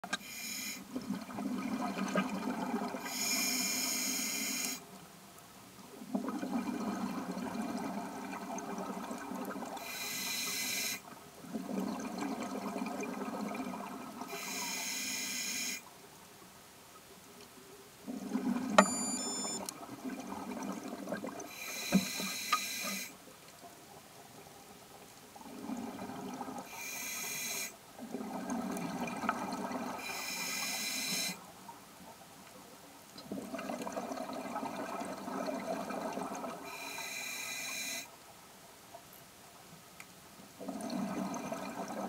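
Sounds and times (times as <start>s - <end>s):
regulator inhalation hiss: 0.1s - 0.8s, 3.1s - 4.8s, 9.8s - 11.0s, 14.3s - 15.8s, 21.5s - 23.1s, 26.7s - 27.8s, 30.1s - 31.4s, 36.7s - 38.1s
exhaled bubbles rumbling: 40.6s - 42.0s.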